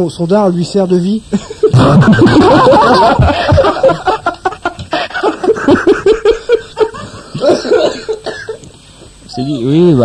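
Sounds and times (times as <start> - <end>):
people laughing hard: 1.3 - 8.3.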